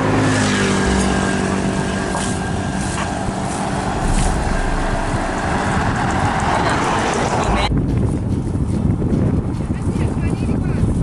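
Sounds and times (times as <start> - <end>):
vehicle engine hum: 0.0 - 7.7
rushing tyres and air: 0.7 - 8.9.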